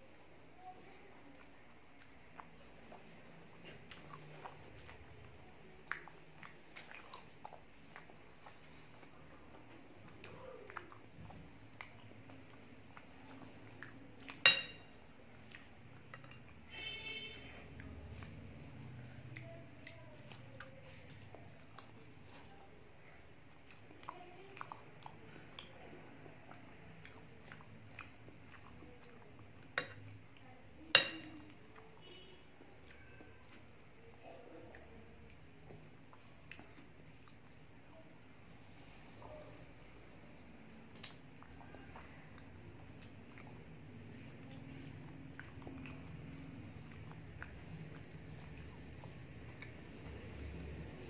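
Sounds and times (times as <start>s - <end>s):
person chewing wetly: 0.3s - 51.0s
mouth clicks and smacks: 1.3s - 14.4s, 40.9s - 51.0s
wet mouth clicks: 5.7s - 14.4s, 40.9s - 43.8s.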